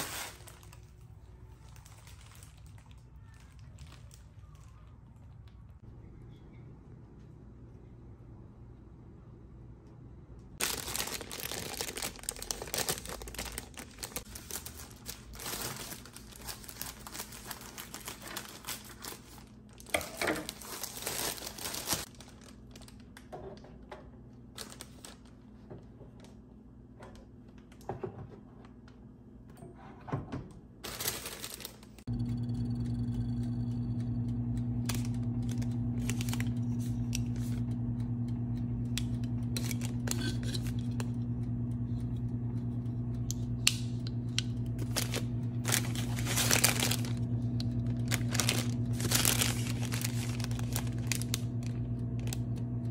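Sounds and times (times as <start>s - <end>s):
plastic packaging crinkling: 0.0s - 5.6s, 10.6s - 23.3s, 24.5s - 25.6s, 30.8s - 32.1s, 34.8s - 37.6s, 39.1s - 41.2s, 44.5s - 52.7s
steady low hum: 31.9s - 52.9s.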